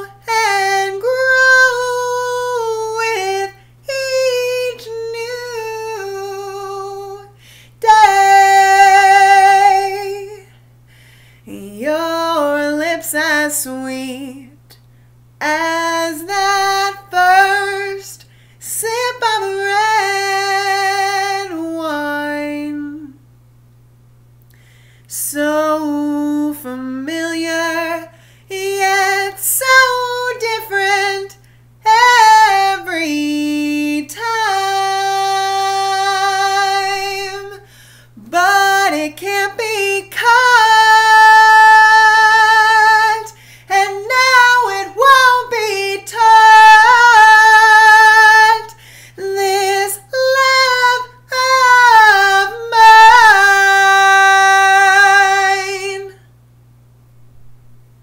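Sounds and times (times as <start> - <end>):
woman singing unaccompanied: 0.0 - 10.6, 11.4 - 14.8, 15.4 - 23.2, 25.1 - 56.3.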